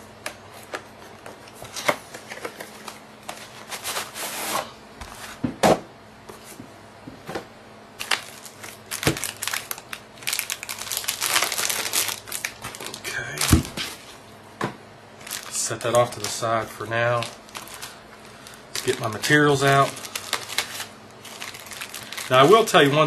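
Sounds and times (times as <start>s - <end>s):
plastic wrap crinkling: 8.0s - 14.2s, 15.2s - 23.0s.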